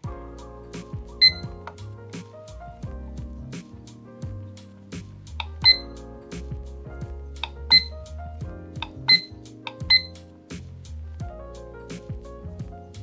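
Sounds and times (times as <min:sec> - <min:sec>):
background music: 0:00.0 - 0:13.0
alarm clock beeps: 0:01.2 - 0:01.5, 0:05.6 - 0:06.0, 0:07.7 - 0:07.9, 0:09.1 - 0:09.3, 0:09.9 - 0:10.1.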